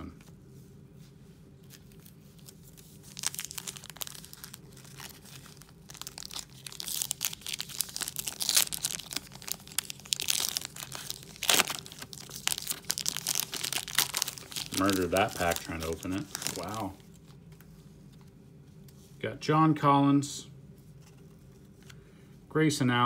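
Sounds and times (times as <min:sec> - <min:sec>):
foil pack crinkling: 0:01.6 - 0:17.3
foil ripping: 0:01.8 - 0:17.0.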